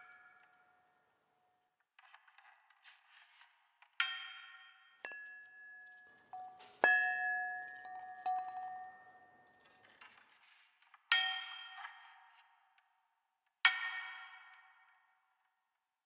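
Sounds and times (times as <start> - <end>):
small metal percussion ringing: 6.4 - 9.4.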